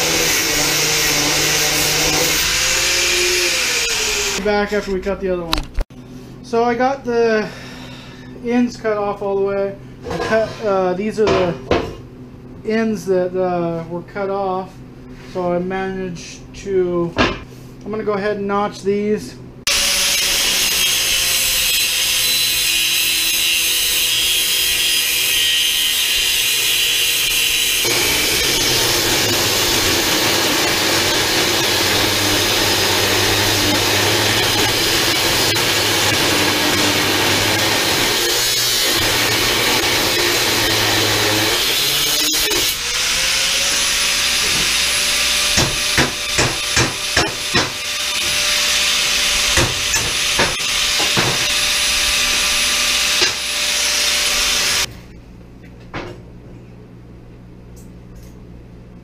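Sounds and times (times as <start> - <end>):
angle grinder cutting steel: 0.0 - 4.9, 19.7 - 54.9.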